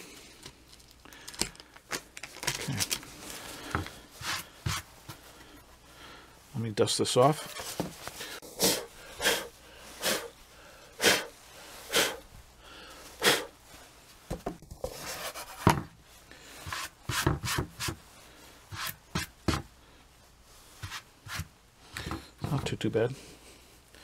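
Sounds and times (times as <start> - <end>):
hand brushing rubs: 4.0 - 5.4, 20.5 - 21.5.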